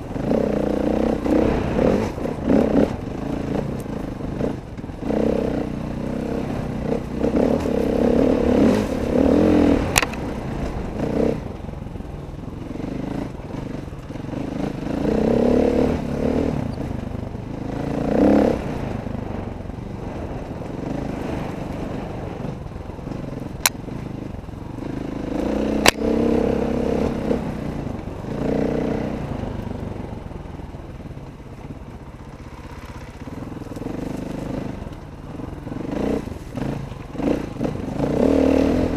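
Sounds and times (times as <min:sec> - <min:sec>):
dirt bike engine revving: 0:00.0 - 0:30.2, 0:32.4 - 0:38.9
clatter: 0:06.4 - 0:11.7, 0:20.1 - 0:26.3.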